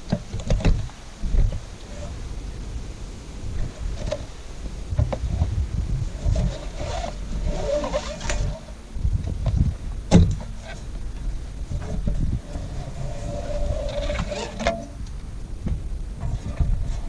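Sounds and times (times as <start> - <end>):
wind rumble on microphone: 0.0 - 17.0
strap webbing rustling and scraping: 3.6 - 8.8, 10.4 - 15.0.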